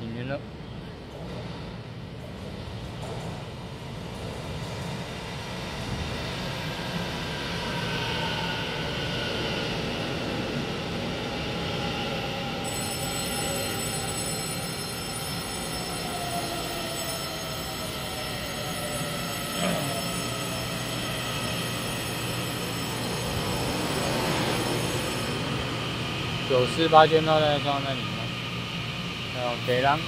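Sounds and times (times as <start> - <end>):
electric train pulling in: 0.0 - 30.0
train whining tones sliding down: 6.7 - 30.0.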